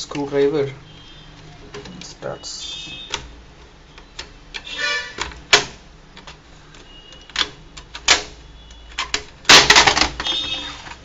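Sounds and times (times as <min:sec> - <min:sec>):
plastic clips snapping: 0:04.0 - 0:11.0.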